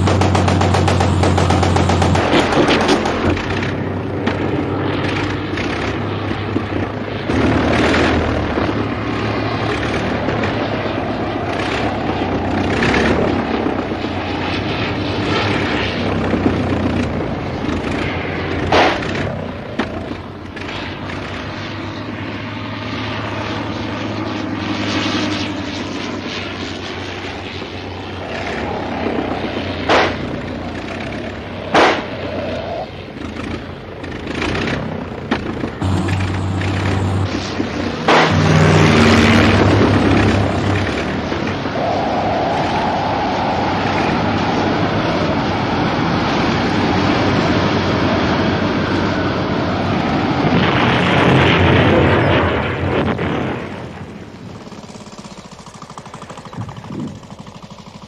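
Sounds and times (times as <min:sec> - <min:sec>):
propeller aircraft engine droning: 0:00.0 - 0:58.0
short sharp bangs: 0:31.7 - 0:32.2, 0:38.0 - 0:39.1.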